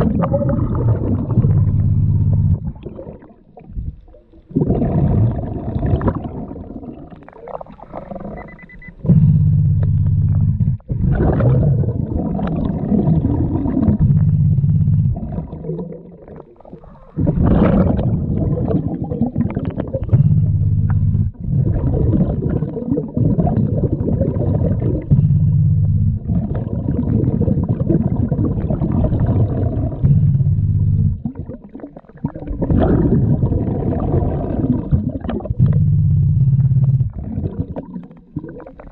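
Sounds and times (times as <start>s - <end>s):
diver breathing through regulator: 8.0s - 11.3s, 25.1s - 25.8s.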